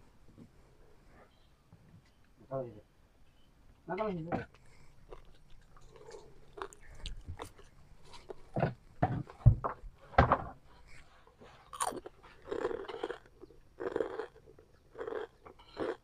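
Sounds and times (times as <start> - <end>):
chewing and mouth sounds: 4.5 - 8.6, 11.6 - 16.0.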